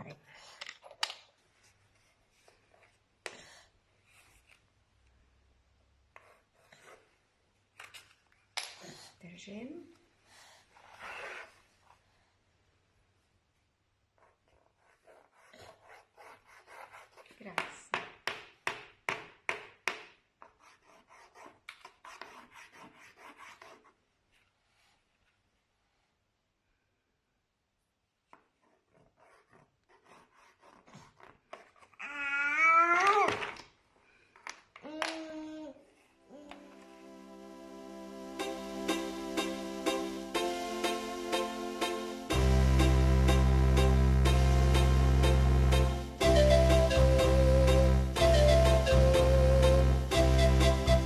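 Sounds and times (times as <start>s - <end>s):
drawing stick scratching on board: 14.2s - 17.7s, 20.4s - 24.0s, 28.3s - 32.0s.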